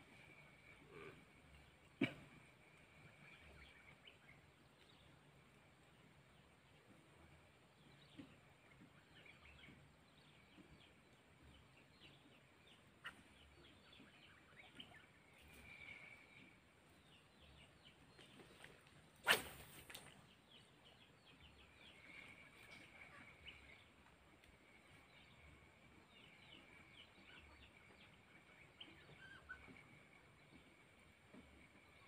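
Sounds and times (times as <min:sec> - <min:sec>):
fishing rod swish: 0:19.2 - 0:20.2.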